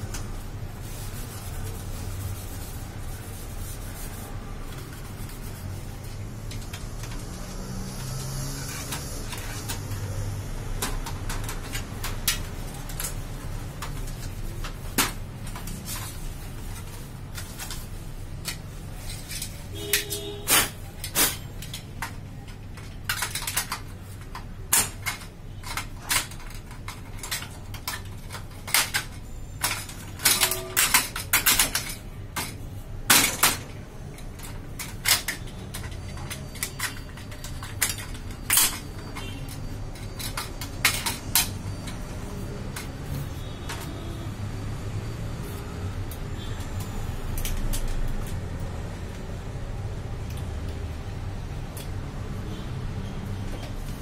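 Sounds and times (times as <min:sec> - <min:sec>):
plastic and metal parts clicking: 0:10.7 - 0:20.2, 0:21.0 - 0:43.1.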